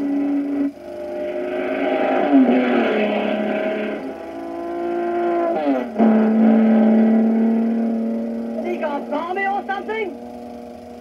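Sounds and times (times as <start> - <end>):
racing car engine passing: 0.0 - 11.0.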